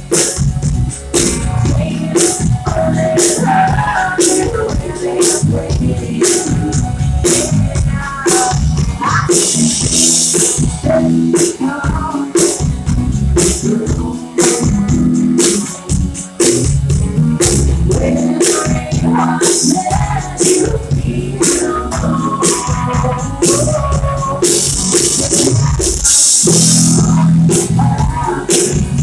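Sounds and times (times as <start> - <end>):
bass guitar: 0.0 - 29.0
drum kit beat: 0.0 - 29.0
electric guitar: 0.0 - 29.0
woman singing: 1.6 - 9.8, 10.8 - 12.7, 13.4 - 15.8, 17.4 - 29.0.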